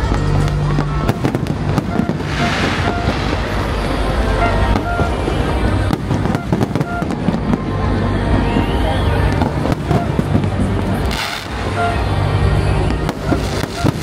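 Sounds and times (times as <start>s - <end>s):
fireworks crackling and banging: 0.0s - 14.0s
firework rising whistle: 0.1s - 7.6s, 11.0s - 12.0s, 13.0s - 14.0s
firework hiss: 0.1s - 14.0s.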